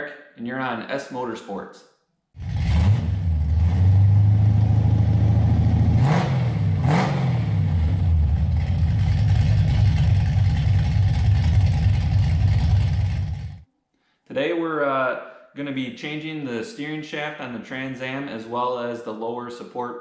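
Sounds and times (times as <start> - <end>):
car engine idling and revving: 2.4 - 13.6.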